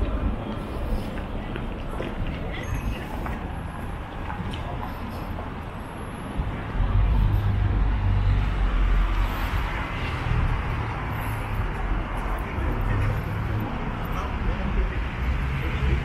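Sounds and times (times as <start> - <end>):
cars driving past: 0.0 - 16.0.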